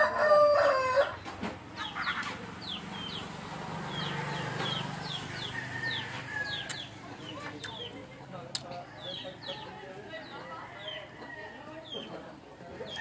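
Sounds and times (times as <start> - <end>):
rooster crowing: 0.0 - 1.2, 3.9 - 7.0
small birds chirping: 1.0 - 13.0.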